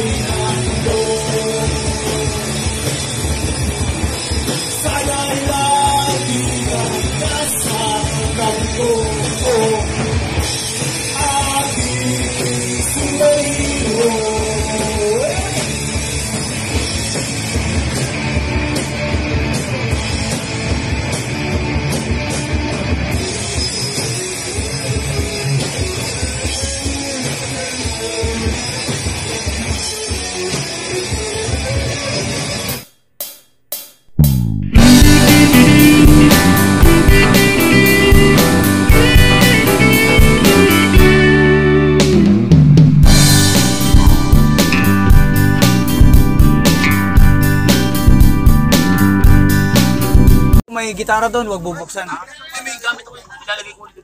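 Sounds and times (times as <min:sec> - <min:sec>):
person singing: 0:00.0 - 0:02.6, 0:04.8 - 0:10.1, 0:11.1 - 0:15.7, 0:34.2 - 0:42.2
electric guitars: 0:00.0 - 0:32.7, 0:34.2 - 0:50.6
drum kit: 0:00.0 - 0:50.7.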